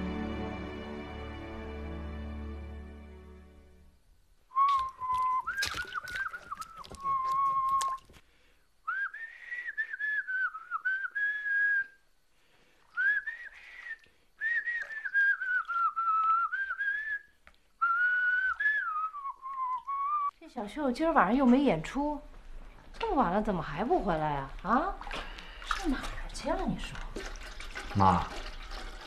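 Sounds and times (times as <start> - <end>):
person whistling a tune: 4.5 - 8.0, 8.9 - 12.0, 13.0 - 20.3.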